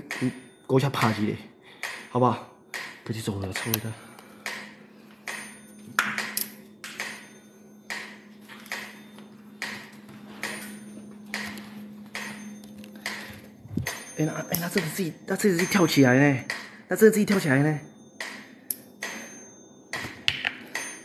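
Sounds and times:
faint steady hum: 0:00.0 - 0:21.0
metronome ticking: 0:12.2 - 0:16.6.

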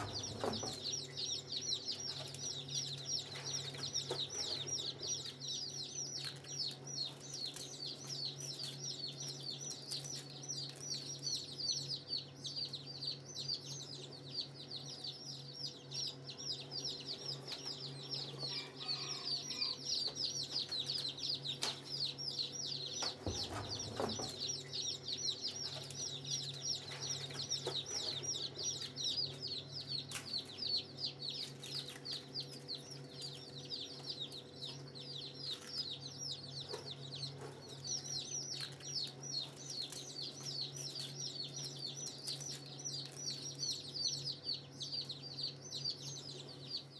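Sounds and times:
chicks peeping: 0:00.0 - 0:46.9.

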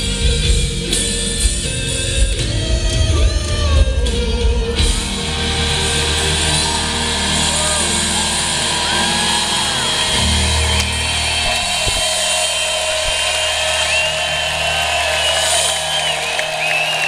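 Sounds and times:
crowd cheering: 0:02.9 - 0:17.0
shrill finger whistles: 0:10.8 - 0:17.0.

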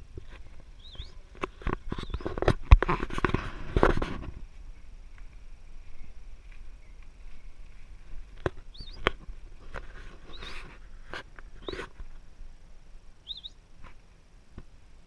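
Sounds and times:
monkey squeaking: 0:00.8 - 0:01.2, 0:08.7 - 0:09.0, 0:10.3 - 0:10.6, 0:13.3 - 0:13.6.

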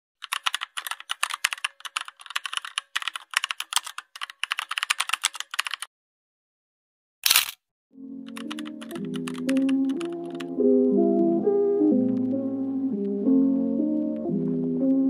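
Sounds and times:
computer keyboard typing: 0:00.2 - 0:05.9, 0:08.2 - 0:10.6.

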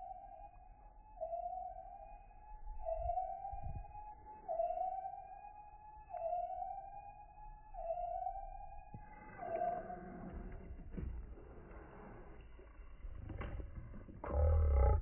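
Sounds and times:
rising and falling alarm siren: 0:00.0 - 0:11.2, 0:14.2 - 0:15.0.

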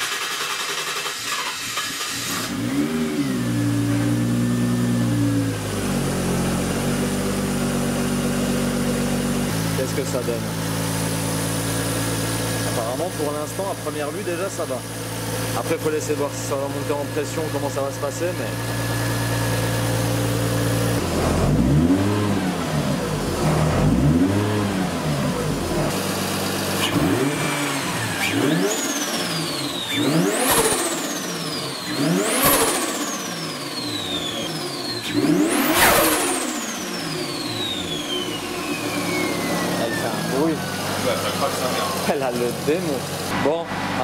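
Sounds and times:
car engine idling and revving: 0:00.0 - 0:44.0
turbo whistle: 0:37.6 - 0:41.0.

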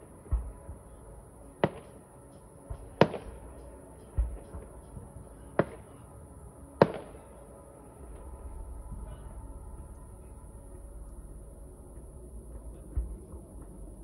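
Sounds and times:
fireworks bangs: 0:01.6 - 0:02.0, 0:02.7 - 0:06.0, 0:06.8 - 0:07.4
deep dull thuds: 0:08.6 - 0:14.0.

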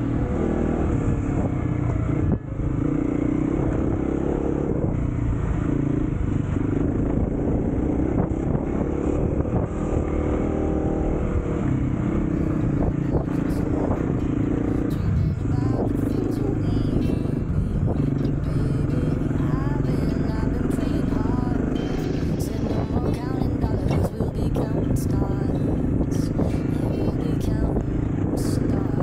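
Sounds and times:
motorcycle engine running: 0:00.0 - 0:29.0.

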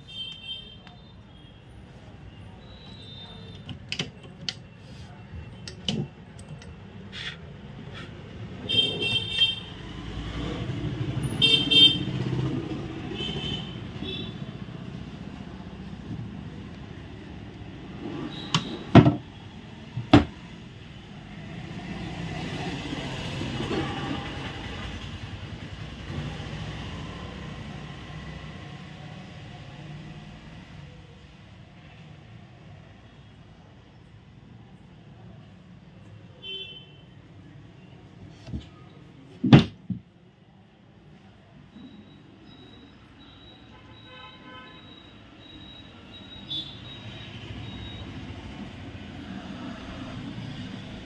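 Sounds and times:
street traffic: 0:00.0 - 0:51.0
car horns tooting: 0:11.2 - 0:12.2, 0:43.7 - 0:45.1
wooden drawer clicks and knocks: 0:18.5 - 0:19.2, 0:20.0 - 0:20.4, 0:39.4 - 0:40.1.

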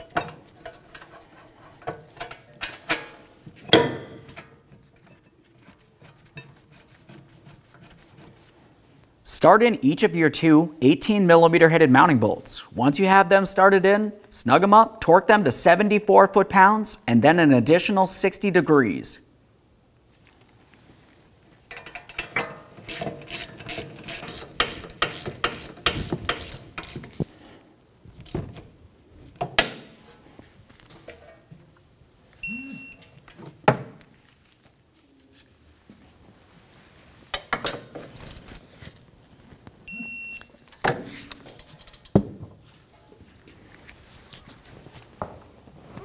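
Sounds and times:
sharp clicks and knocks: 0:21.7 - 0:27.3, 0:40.8 - 0:42.5
ratchet clicking rapidly: 0:22.9 - 0:27.1
short high electronic beep: 0:32.4 - 0:33.0, 0:39.9 - 0:40.4.

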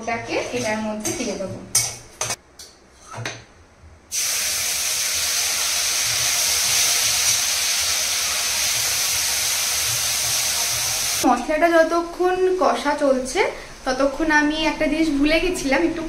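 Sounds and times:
paste sizzling in hot oil: 0:04.1 - 0:11.2.

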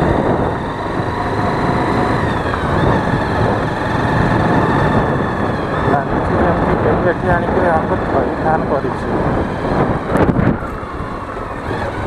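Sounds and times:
motorcycle engine running: 0:00.0 - 0:12.0
steady whine: 0:00.0 - 0:12.0
wind noise on microphone: 0:00.0 - 0:12.0.

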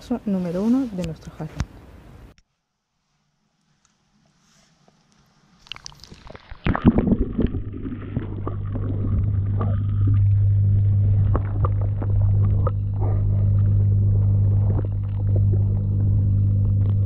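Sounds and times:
underwater pump hum: 0:04.8 - 0:17.0
water splashing and gurgling: 0:05.6 - 0:17.0.

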